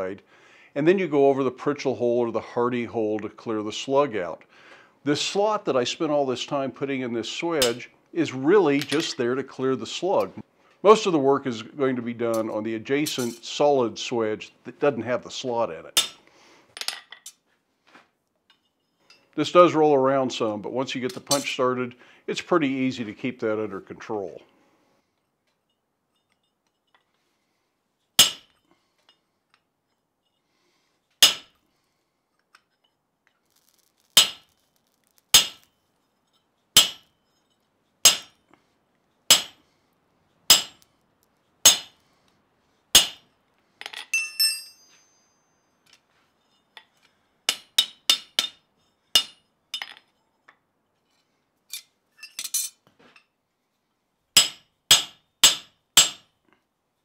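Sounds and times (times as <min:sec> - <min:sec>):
hammer striking metal punch: 0:16.0 - 0:16.2, 0:28.2 - 0:28.6, 0:31.2 - 0:31.6, 0:34.2 - 0:34.5, 0:35.4 - 0:35.7, 0:36.8 - 0:37.1, 0:38.0 - 0:38.4, 0:39.3 - 0:39.6, 0:40.5 - 0:40.8, 0:41.6 - 0:42.0, 0:43.0 - 0:43.2, 0:47.5 - 0:48.6, 0:49.2 - 0:49.4, 0:54.4 - 0:56.3.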